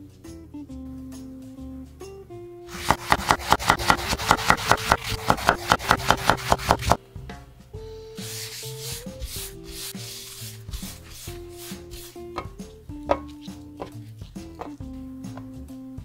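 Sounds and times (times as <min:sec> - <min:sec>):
knife chopping on wooden board: 0:02.7 - 0:07.0
paper towel rubbing grill pan: 0:02.7 - 0:07.0, 0:08.2 - 0:12.3.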